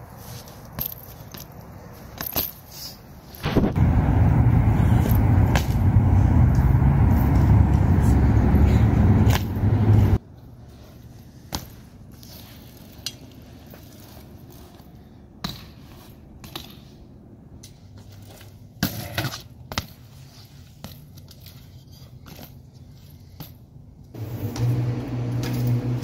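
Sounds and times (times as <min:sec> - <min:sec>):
bike parts rattling: 0:00.2 - 0:03.6, 0:10.8 - 0:17.0
bike tyres and frame hitting concrete: 0:00.2 - 0:03.8, 0:04.8 - 0:08.0, 0:08.7 - 0:10.2, 0:10.8 - 0:17.0, 0:17.6 - 0:26.0
loud steady rush: 0:03.4 - 0:10.2, 0:24.2 - 0:26.0.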